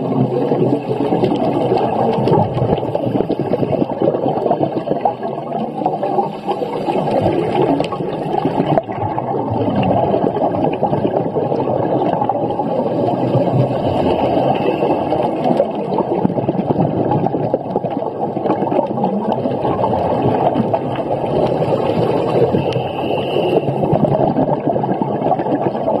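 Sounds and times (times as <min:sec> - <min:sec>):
underwater rushing and gurgling: 0:00.0 - 0:26.0
faint high whistle: 0:22.6 - 0:23.8.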